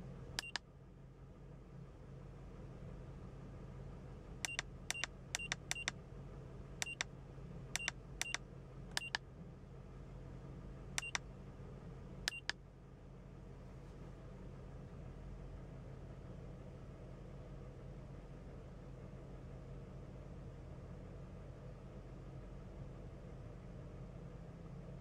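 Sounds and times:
electronic key beeps: 0.4s - 0.6s, 4.5s - 5.9s, 6.8s - 7.0s, 7.8s - 8.4s, 9.0s - 9.2s, 11.0s - 11.2s, 12.3s - 12.5s.

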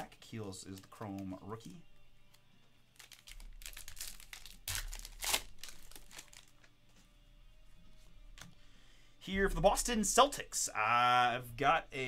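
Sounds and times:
plastic wrapper crinkling and tearing: 2.9s - 6.7s.

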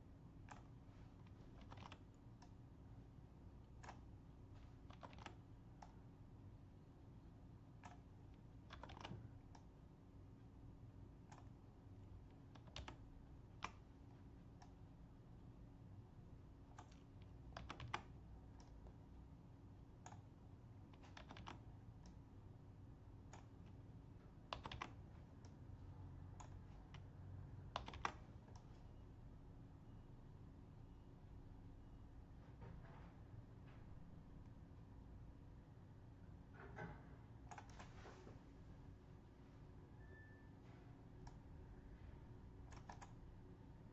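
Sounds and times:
faint steady hum: 0.0s - 43.9s
computer mouse clicks: 0.4s - 2.6s, 3.6s - 6.0s, 7.7s - 9.8s, 11.2s - 11.6s, 12.2s - 14.9s, 16.7s - 19.0s, 20.0s - 22.2s, 23.3s - 23.8s, 24.5s - 25.7s, 26.3s - 27.1s, 27.7s - 28.9s, 37.4s - 37.9s, 41.2s - 41.5s, 42.6s - 43.2s.

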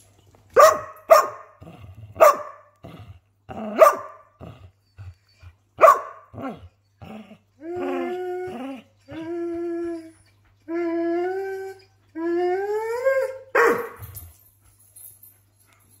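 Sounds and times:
dog barking: 0.6s - 1.6s, 2.2s - 2.7s, 3.7s - 4.3s, 5.8s - 6.5s, 13.6s - 14.0s
dog howling: 6.4s - 13.8s.

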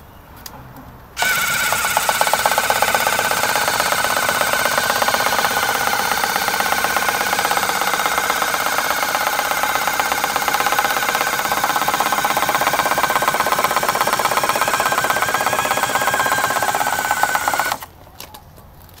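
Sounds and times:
gutter robot motor whirring: 1.2s - 17.9s.

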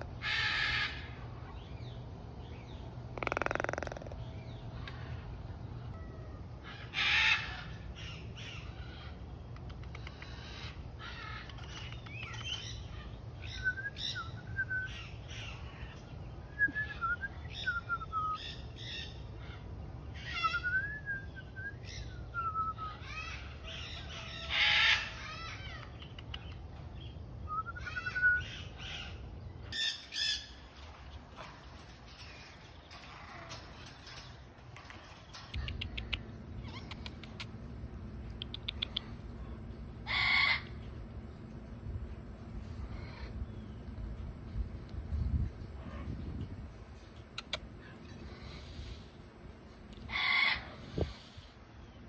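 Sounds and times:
hornbill cawing calls: 3.2s - 4.2s, 6.6s - 8.6s, 40.1s - 40.7s, 50.1s - 50.9s.

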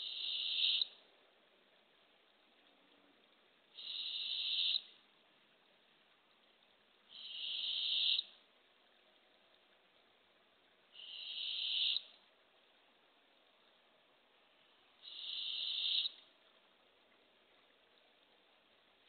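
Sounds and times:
owlet raspy hissing begging call: 0.0s - 0.9s, 3.8s - 4.9s, 7.1s - 8.3s, 11.0s - 12.0s, 15.0s - 16.2s.

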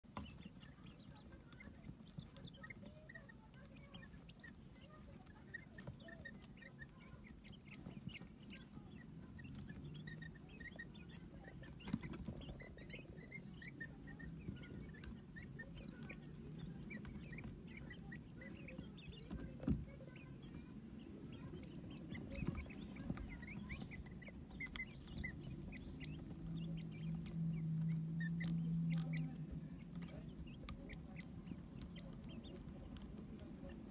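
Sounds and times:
chicks peeping: 0.0s - 33.9s
low steady hum: 0.0s - 33.9s.

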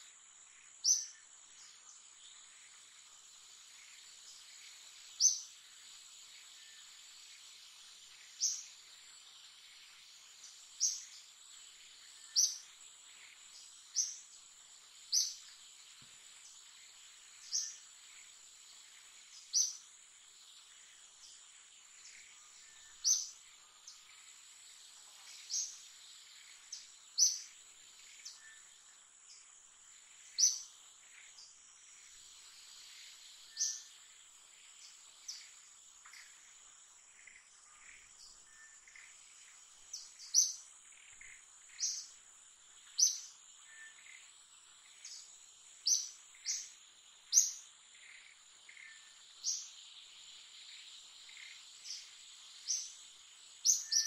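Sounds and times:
high insect drone: 0.0s - 54.0s
sharp bird chirps: 53.6s - 54.0s.

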